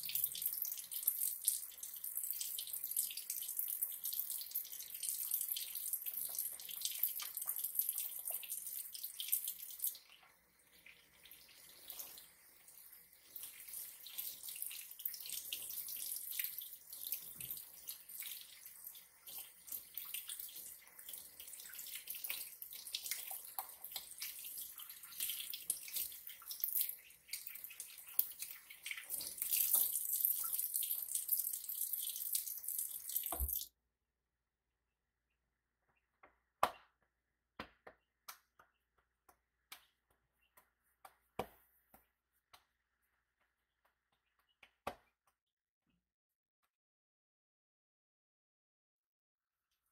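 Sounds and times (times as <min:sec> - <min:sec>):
faucet running into sink: 0:00.0 - 0:33.7.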